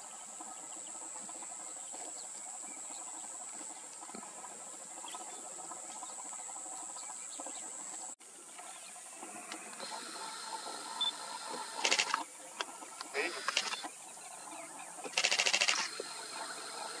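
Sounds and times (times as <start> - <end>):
high-pitched insect drone: 9.8 - 12.2, 13.1 - 13.9, 15.1 - 17.0.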